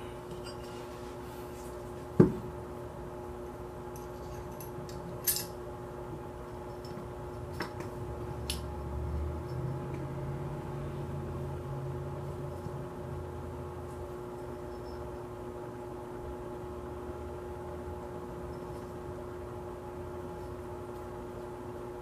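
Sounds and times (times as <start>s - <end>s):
faint hum: 0.0s - 22.0s
small metal parts clicking: 4.0s - 5.5s.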